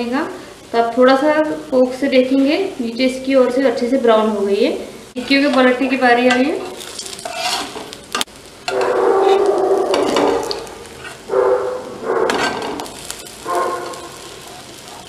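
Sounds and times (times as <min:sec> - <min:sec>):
oil sizzling: 0:00.0 - 0:15.0
metal spatula scraping pan: 0:05.2 - 0:07.9, 0:08.7 - 0:11.3, 0:12.3 - 0:12.9.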